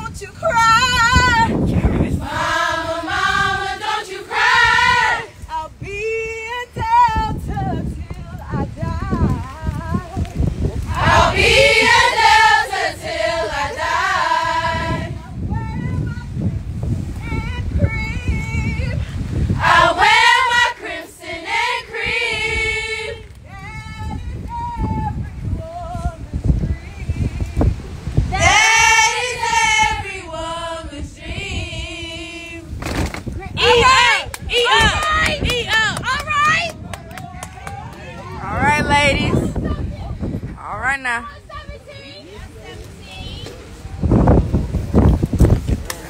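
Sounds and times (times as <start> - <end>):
women singing together: 0.0 - 10.2, 10.8 - 16.4, 17.2 - 32.8, 33.6 - 36.0.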